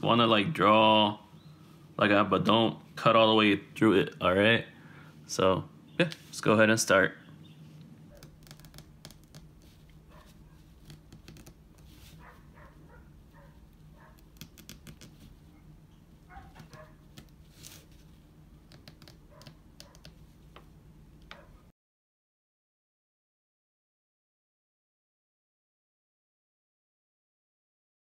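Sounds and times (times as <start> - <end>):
steady low hum: 0.0 - 21.7
pin scratching banana peel: 8.1 - 12.7, 14.0 - 15.3.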